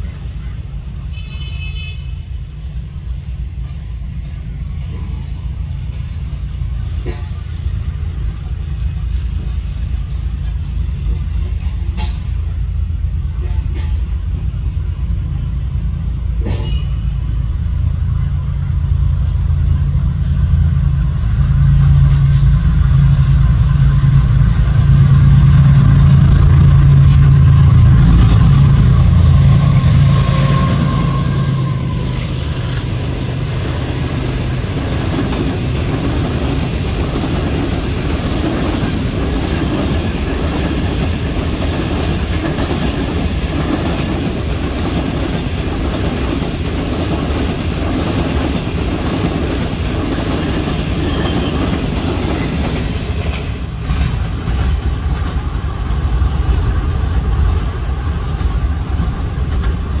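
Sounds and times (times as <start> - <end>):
train rushing past: 1.9 - 60.0
wheels clattering over rail joints: 26.2 - 55.5.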